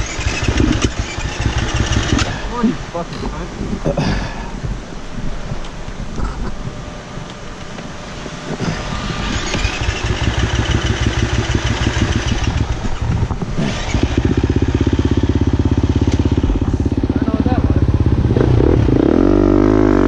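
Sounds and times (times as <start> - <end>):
dirt bike engines running: 0.0 - 20.0
dirt bike engine thumping: 8.6 - 18.4.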